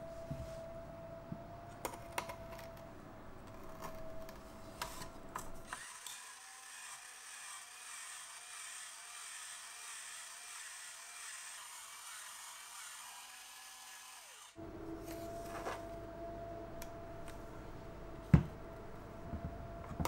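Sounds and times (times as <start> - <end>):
potato peeler whirring and scraping: 3.5 - 15.6.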